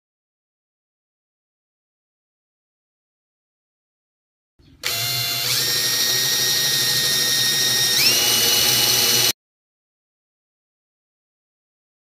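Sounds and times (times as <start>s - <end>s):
cordless drill whining: 4.8s - 9.4s.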